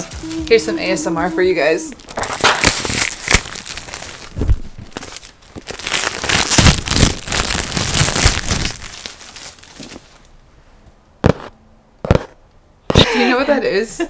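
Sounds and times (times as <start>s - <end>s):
plastic wrap crinkling: 0.0s - 10.3s.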